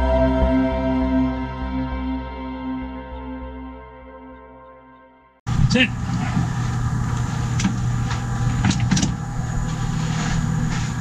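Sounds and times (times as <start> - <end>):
electric winch running: 5.5 - 11.0.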